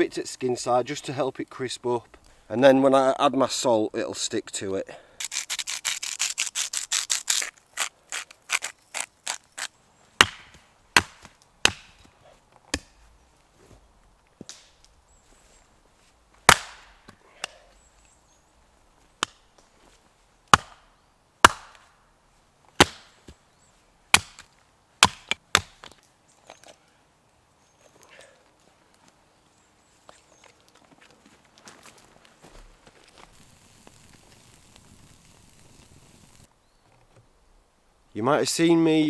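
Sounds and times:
axe chopping firewood: 0:08.5 - 0:12.1, 0:12.7 - 0:13.0, 0:16.4 - 0:17.7, 0:19.2 - 0:19.4, 0:20.5 - 0:21.8, 0:22.8 - 0:23.2, 0:24.1 - 0:26.0.

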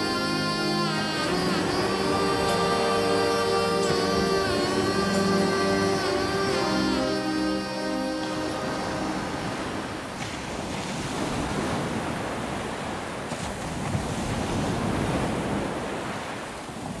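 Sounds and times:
wind on microphone: 0:00.0 - 0:17.0
surf washing onto beach: 0:08.2 - 0:17.0.

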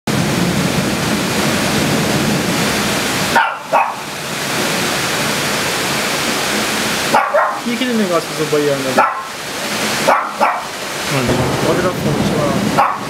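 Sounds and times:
heavy rain hiss: 0:00.1 - 0:13.0
dog barking: 0:03.3 - 0:04.1, 0:07.1 - 0:07.7, 0:09.0 - 0:09.4, 0:10.0 - 0:10.8, 0:12.7 - 0:13.0.

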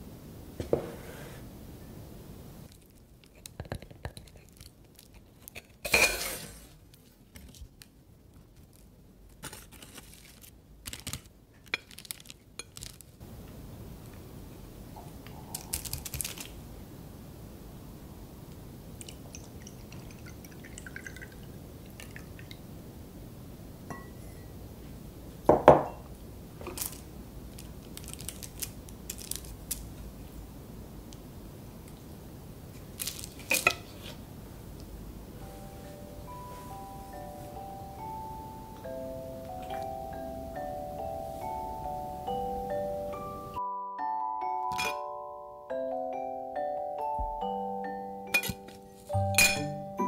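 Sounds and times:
cutlery scraping a plate: 0:05.5 - 0:06.7, 0:48.4 - 0:48.8.

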